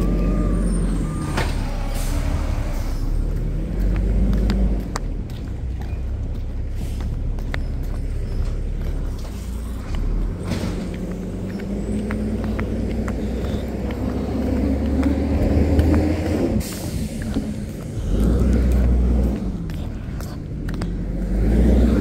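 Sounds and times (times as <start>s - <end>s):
truck diesel engine running: 0.0s - 22.0s
air brakes hissing: 0.5s - 3.2s, 6.7s - 7.2s, 16.5s - 18.0s.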